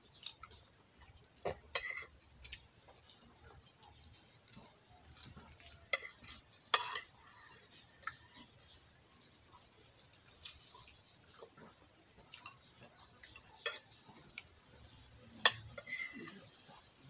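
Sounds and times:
spoons clinking on plate and bowl: 0:05.9 - 0:07.6, 0:15.4 - 0:16.3.

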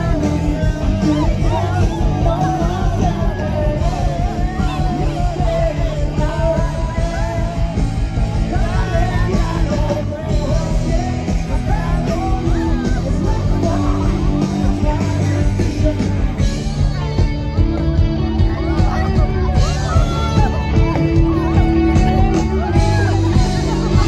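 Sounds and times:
crowd shouting along: 0:00.0 - 0:24.0
live rock music with singer: 0:00.0 - 0:24.0.

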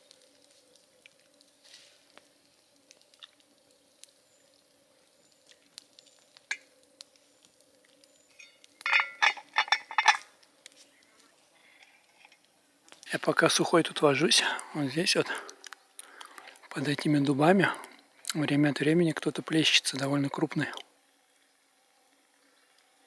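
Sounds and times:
faint ticks: 0:00.0 - 0:08.9, 0:15.3 - 0:16.8, 0:19.9 - 0:23.0
cooking pot clinks and clatters: 0:08.4 - 0:10.3.

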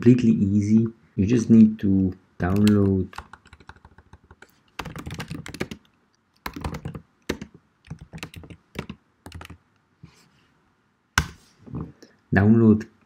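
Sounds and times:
computer keyboard typing: 0:02.4 - 0:09.6.

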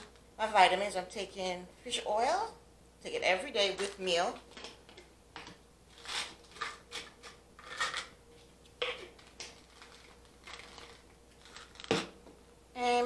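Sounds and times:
plastic bottles rustling and clicking: 0:08.8 - 0:12.4.

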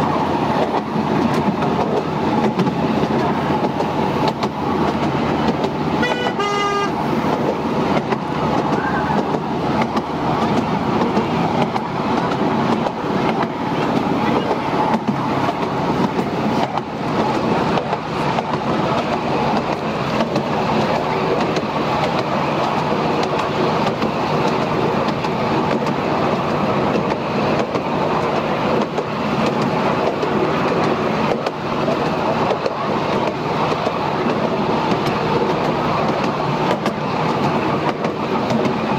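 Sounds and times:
miniature train rumbling and clattering: 0:00.0 - 0:38.9
locomotive horn toot: 0:06.0 - 0:07.0.

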